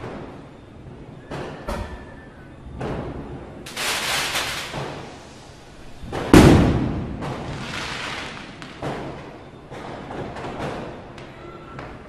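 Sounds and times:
distant firecracker cracks: 3.7 - 5.4, 6.1 - 11.9
loud firecracker bang echoing: 3.7 - 5.4, 6.0 - 11.3.

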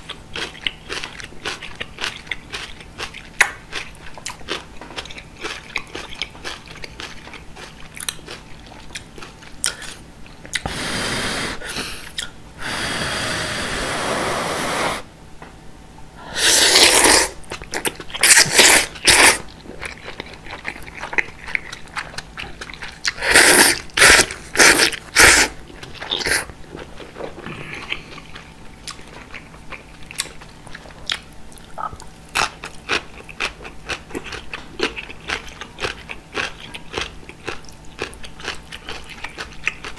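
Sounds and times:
wet chewing: 0.1 - 10.7, 16.6 - 39.9
noodles slurped loudly: 16.4 - 17.4.

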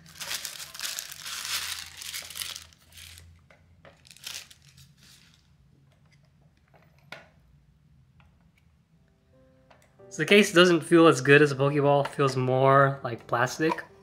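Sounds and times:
wrapping crinkling: 0.0 - 3.3, 3.9 - 5.5.

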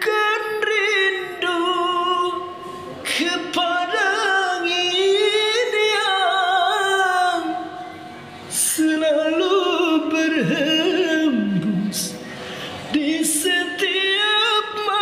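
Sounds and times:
man singing unaccompanied: 0.0 - 7.8, 8.5 - 12.2, 12.9 - 15.0
quick breath: 12.2 - 12.9.

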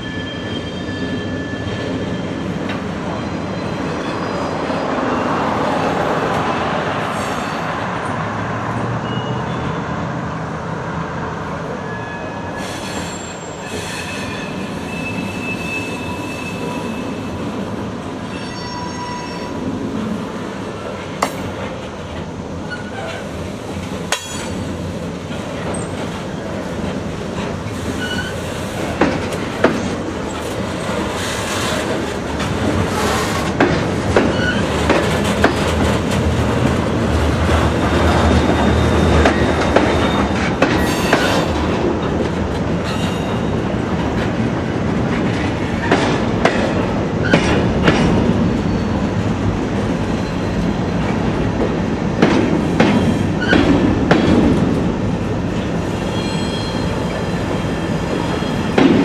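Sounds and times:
train wheels squealing on rails: 0.0 - 5.9, 7.0 - 8.2, 8.8 - 9.9, 11.6 - 21.8, 22.4 - 23.5, 24.1 - 32.2, 32.8 - 35.8, 37.6 - 41.8, 42.8 - 43.8, 45.8 - 51.3, 52.6 - 54.3, 55.6 - 59.0
train rumble: 12.4 - 59.0.

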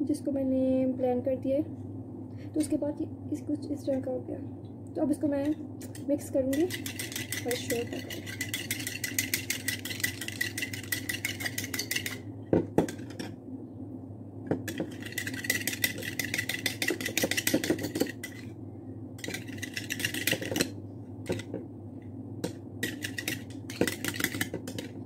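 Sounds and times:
steady low hum: 0.0 - 25.0
plastic spoon scraping bowl: 6.6 - 12.2, 14.7 - 18.5, 19.2 - 20.7.

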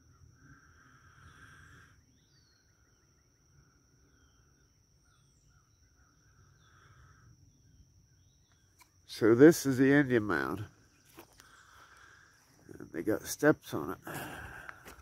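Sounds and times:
insect hum: 0.0 - 15.0
bird chirps: 1.2 - 9.2.

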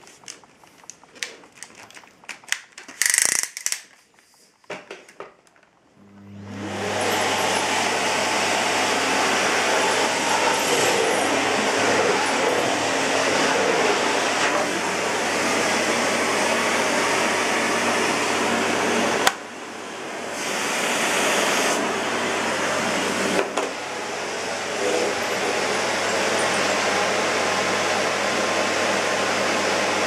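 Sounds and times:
vacuum cleaner running: 6.0 - 30.0.

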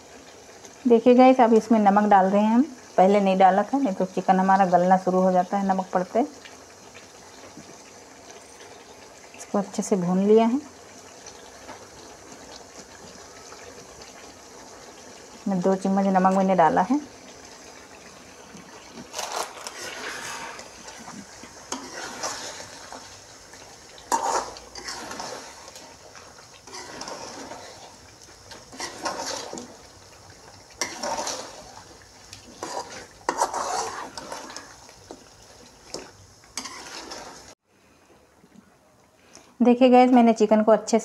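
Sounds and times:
food sizzling: 0.0 - 37.6
metal spatula scraping a pan: 19.1 - 23.0, 24.0 - 26.0, 26.6 - 29.8, 30.8 - 31.9, 32.5 - 34.8, 35.9 - 37.6.

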